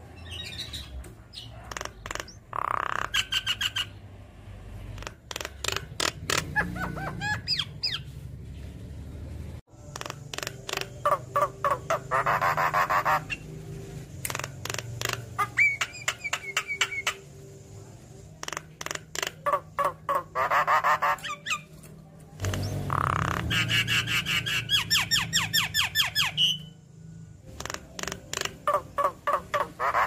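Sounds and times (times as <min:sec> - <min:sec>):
bird harsh chattering: 0:01.4 - 0:04.0, 0:05.0 - 0:08.0, 0:09.9 - 0:13.5, 0:14.3 - 0:17.2, 0:18.4 - 0:21.7, 0:27.5 - 0:30.0
bird clicking calls: 0:01.6 - 0:03.8, 0:05.0 - 0:06.6, 0:09.9 - 0:11.8, 0:14.2 - 0:17.2, 0:18.4 - 0:20.2, 0:27.5 - 0:29.8
bird whistled notes: 0:15.5 - 0:17.3.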